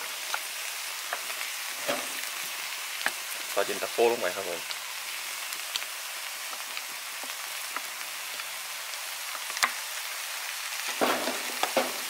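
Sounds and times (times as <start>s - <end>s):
food sizzling in wok: 0.0s - 12.0s.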